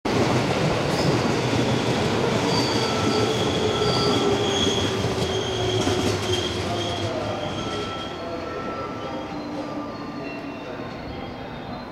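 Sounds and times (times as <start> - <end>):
thin high squealing tones: 2.4 - 11.9.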